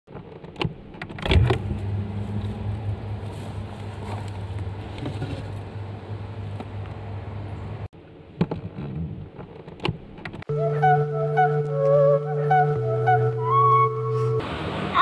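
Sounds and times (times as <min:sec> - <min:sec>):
refrigerator humming: 0:01.3 - 0:07.9.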